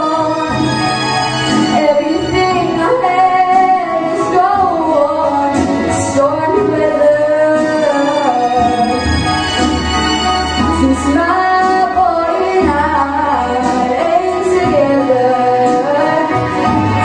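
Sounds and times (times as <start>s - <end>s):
backing track with bass line: 0.0s - 17.0s
girl singing jazz ballad: 1.7s - 9.0s, 10.7s - 16.5s.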